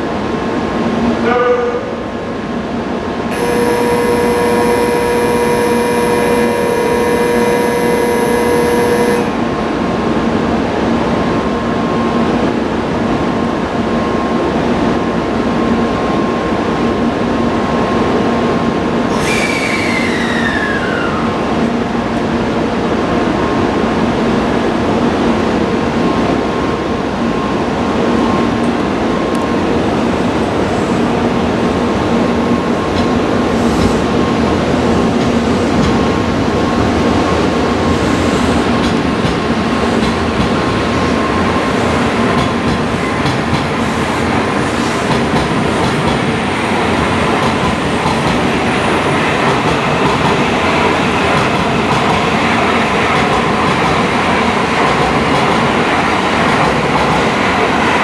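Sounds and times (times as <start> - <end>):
train humming: 0.0 - 58.0
falling whine: 3.3 - 9.4
steady ringing tone: 3.4 - 9.3.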